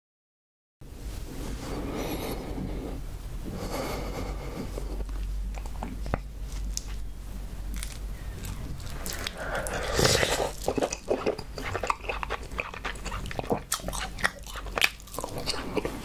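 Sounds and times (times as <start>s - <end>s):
steady low hum: 0.8s - 16.0s.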